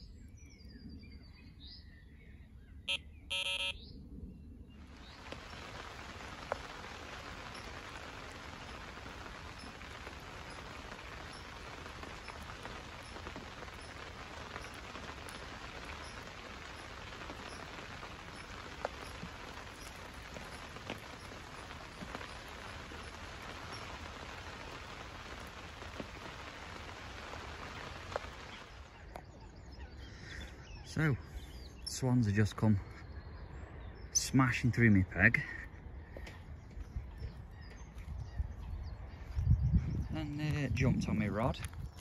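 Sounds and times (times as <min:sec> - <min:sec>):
steady rain hiss: 0:04.7 - 0:33.0.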